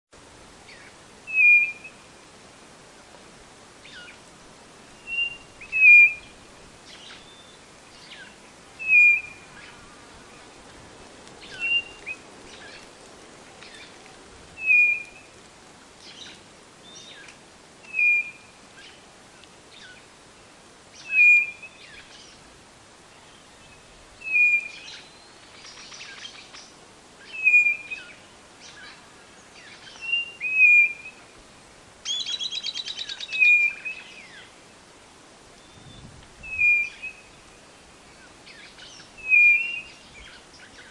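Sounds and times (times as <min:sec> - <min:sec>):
small birds chirping faintly: 0:00.2 - 0:40.9
bird whistled call: 0:01.3 - 0:02.0, 0:05.0 - 0:06.3, 0:08.2 - 0:09.4, 0:11.5 - 0:12.8, 0:14.6 - 0:15.3, 0:17.9 - 0:18.4, 0:21.0 - 0:22.0, 0:24.2 - 0:26.4, 0:27.2 - 0:28.9, 0:29.7 - 0:31.2, 0:32.0 - 0:34.4, 0:35.6 - 0:37.4, 0:38.5 - 0:40.9.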